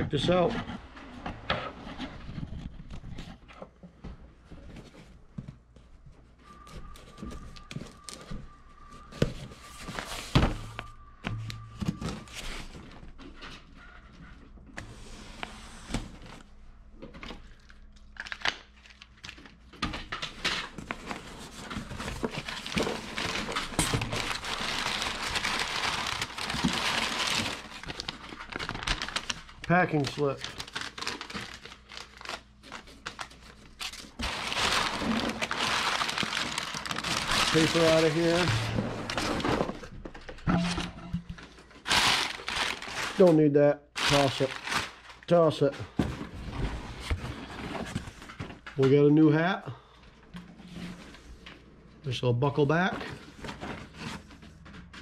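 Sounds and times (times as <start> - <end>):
packing paper rustling: 6.4 - 13.2, 17.4 - 40.4, 41.4 - 43.4, 44.0 - 48.6.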